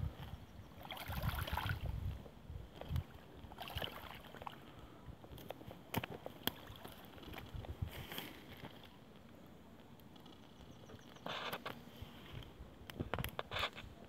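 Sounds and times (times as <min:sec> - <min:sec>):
small waves lapping on stones: 0:02.8 - 0:04.8.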